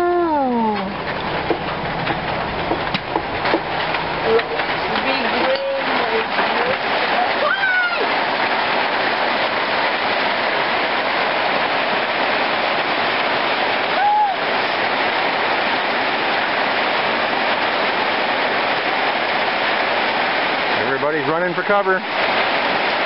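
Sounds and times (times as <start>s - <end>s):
steady rain hiss: 0.0s - 23.0s.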